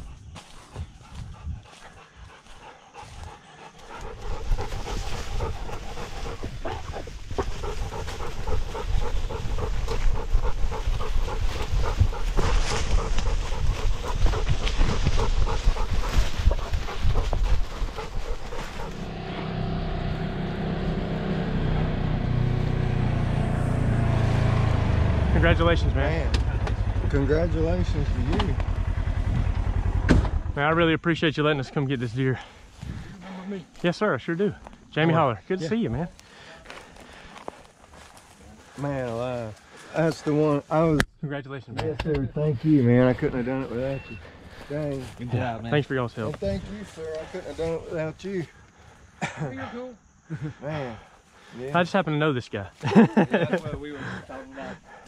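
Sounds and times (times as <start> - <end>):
dog panting hard: 0.0 - 19.1, 31.8 - 33.7, 54.0 - 55.0
utility vehicle engine running: 7.6 - 30.7.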